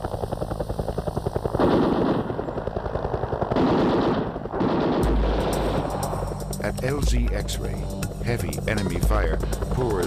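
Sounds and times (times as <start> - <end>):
helicopter rotor chopping: 0.0 - 10.0
automatic gunfire bursts: 3.6 - 5.8.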